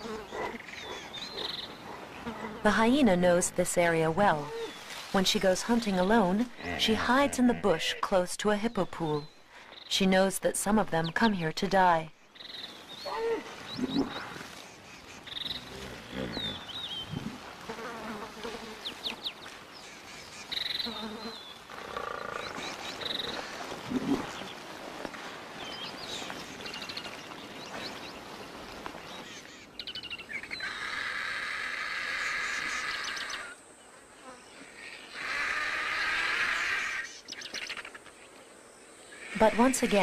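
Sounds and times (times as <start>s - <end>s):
insect buzz: 0.0s - 2.6s, 15.2s - 19.6s, 20.3s - 24.4s, 30.6s - 38.1s
low animal calls: 15.4s - 17.4s.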